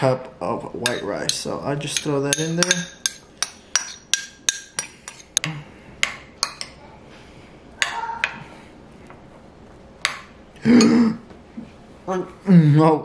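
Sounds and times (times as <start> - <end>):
metal spoon clinking on ceramic bowl: 0.8 - 5.2.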